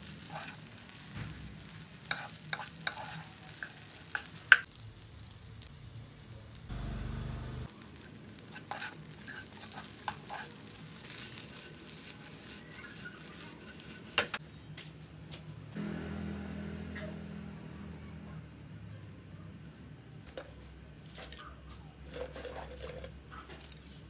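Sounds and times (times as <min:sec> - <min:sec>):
wooden spatula scraping wok: 0:00.0 - 0:04.7, 0:08.4 - 0:14.4, 0:22.1 - 0:24.0
rice sizzling in a wok: 0:00.0 - 0:14.4.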